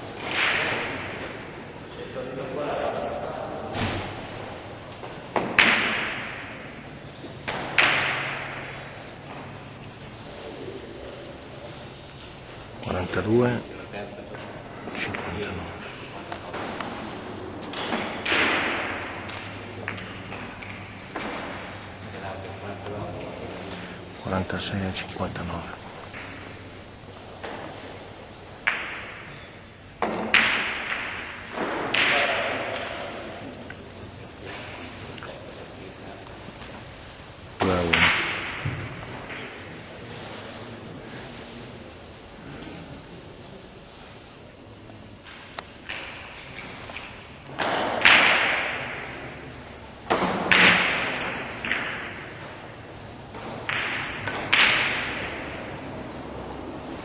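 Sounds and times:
billiard balls clacking: 0.0s - 1.9s, 4.1s - 11.6s, 14.3s - 24.0s, 24.6s - 33.9s, 45.2s - 57.0s
cue striking ball: 5.3s - 9.5s, 53.5s - 55.6s
cue striking billiard ball: 5.3s - 9.6s, 16.4s - 21.9s.

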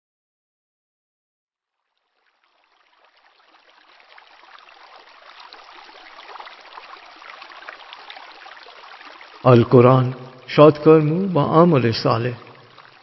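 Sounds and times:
stream water babbling: 1.7s - 13.0s.

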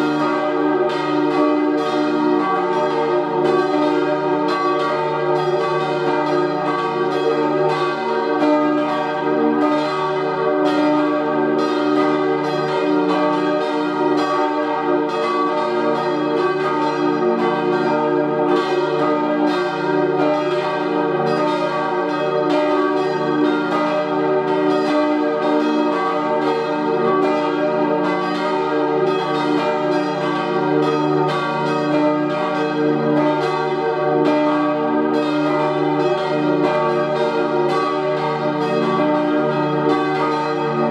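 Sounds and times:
church bells pealing: 0.0s - 40.9s.

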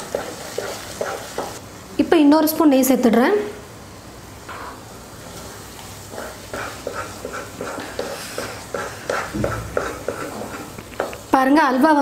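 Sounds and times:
spatula squelching thick halwa: 6.1s - 11.2s.

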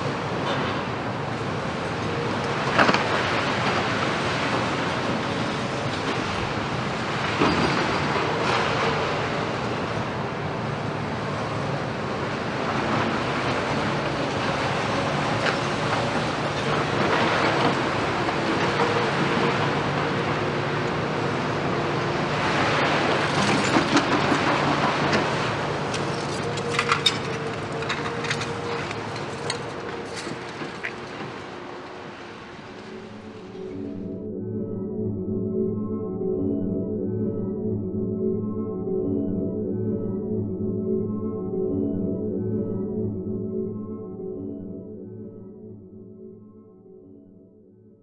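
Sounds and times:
excavator diesel engines running: 0.0s - 34.1s.

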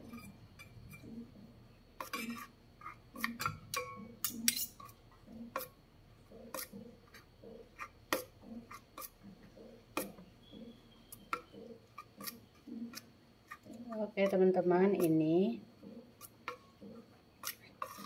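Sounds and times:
cutlery clinking and scraping bowl: 2.0s - 5.7s, 6.5s - 7.2s, 17.4s - 18.0s.

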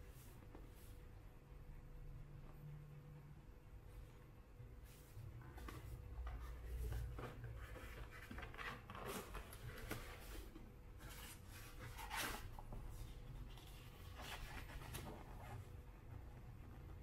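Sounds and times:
cardboard and paper rustling: 5.5s - 15.7s.

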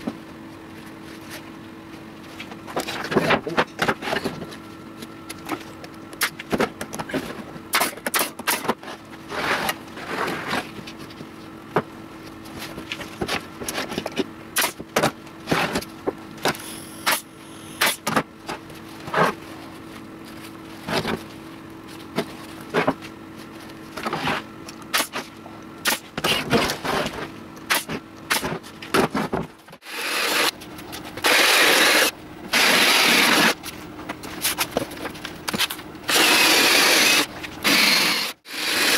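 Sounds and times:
steady low hum: 0.0s - 38.5s
cordless drill boring wood: 29.8s - 30.5s, 31.2s - 33.5s, 36.1s - 38.9s.

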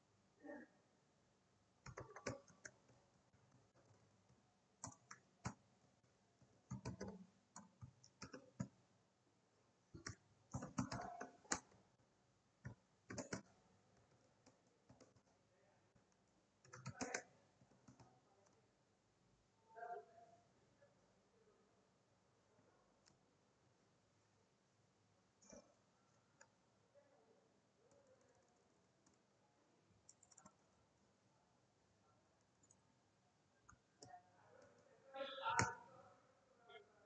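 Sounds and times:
keyboard typing clicks: 1.8s - 3.0s, 4.8s - 5.6s, 6.7s - 8.8s, 10.0s - 11.8s, 12.6s - 15.3s, 16.6s - 18.6s, 30.1s - 30.6s, 32.5s - 32.8s.

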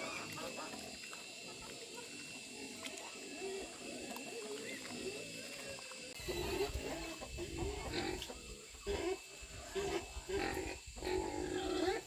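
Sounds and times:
young wild boars grunting and squealing: 0.0s - 12.0s.

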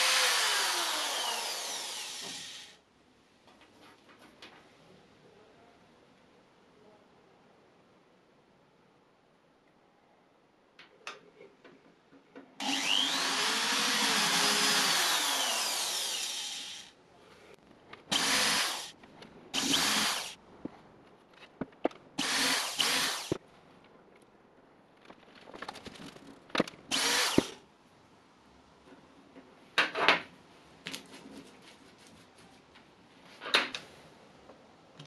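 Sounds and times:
cordless drill running: 0.0s - 2.8s, 12.6s - 16.9s, 18.1s - 18.9s, 19.6s - 20.4s, 22.2s - 23.4s, 26.9s - 27.5s.

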